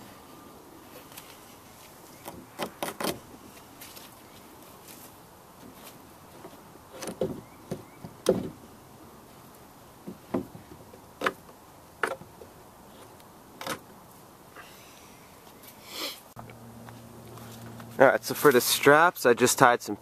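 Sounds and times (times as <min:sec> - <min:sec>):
wooden sticks handled: 0:00.9 - 0:08.6.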